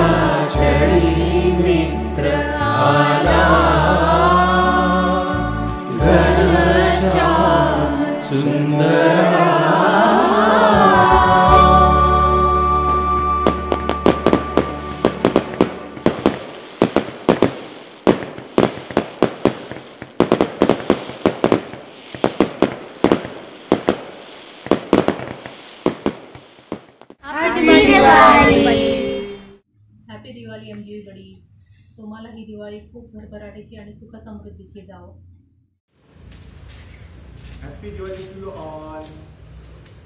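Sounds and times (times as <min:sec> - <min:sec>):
song with music: 0:00.0 - 0:16.2
firecracker bangs and crackles: 0:13.4 - 0:27.2, 0:36.1 - 0:38.5
voices: 0:27.2 - 0:35.2.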